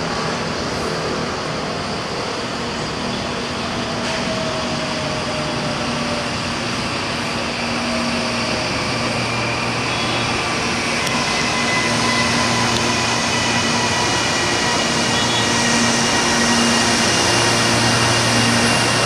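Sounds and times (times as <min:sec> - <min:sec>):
electric train whining: 0:00.0 - 0:19.0
train wheels rumbling on rails: 0:00.0 - 0:19.0.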